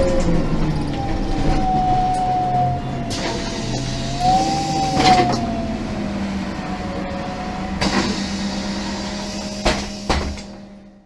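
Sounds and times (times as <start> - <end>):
bus engine idling: 0.0 - 11.0.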